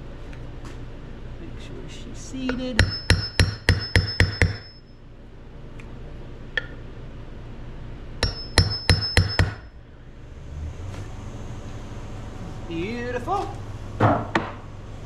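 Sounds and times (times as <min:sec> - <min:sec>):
hammer tapping metal: 0:02.4 - 0:04.8, 0:08.2 - 0:09.7.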